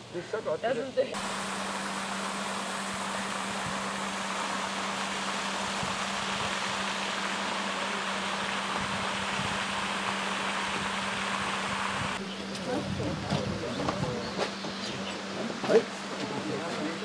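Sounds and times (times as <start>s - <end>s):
fountain water splashing: 1.1s - 12.2s.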